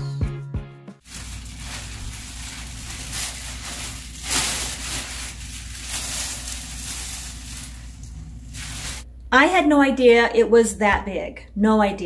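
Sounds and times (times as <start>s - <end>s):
plastic sheet crinkling: 1.0s - 9.0s.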